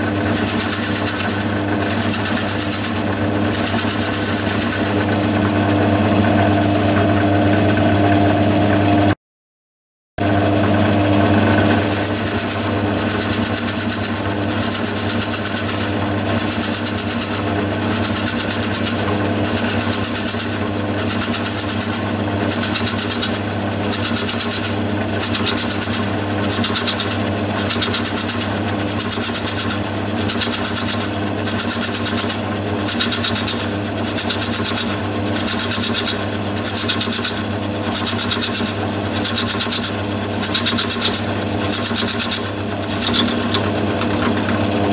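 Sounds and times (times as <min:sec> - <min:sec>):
lathe machine drone: 0:00.0 - 0:09.2, 0:10.2 - 0:44.9
hissing cutting noise: 0:11.5 - 0:44.9.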